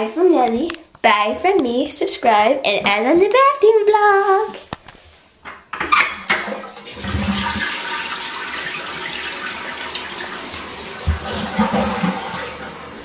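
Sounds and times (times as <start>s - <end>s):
toilet flushing: 5.8s - 13.0s.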